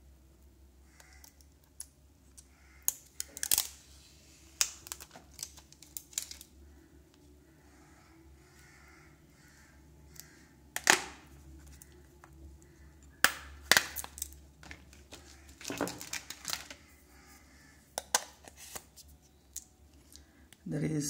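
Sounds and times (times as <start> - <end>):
plastic cover clicks and snaps: 2.9 - 3.8, 4.6 - 6.5, 10.8 - 11.2, 13.2 - 16.8, 18.0 - 18.9.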